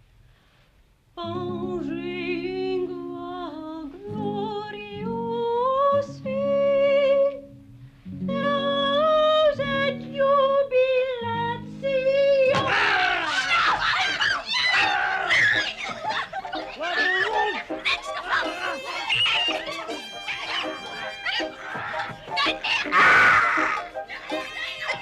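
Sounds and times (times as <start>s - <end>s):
woman singing with vibrato: 1.2s - 7.4s, 8.2s - 12.7s
lute accompaniment: 16.4s - 24.9s.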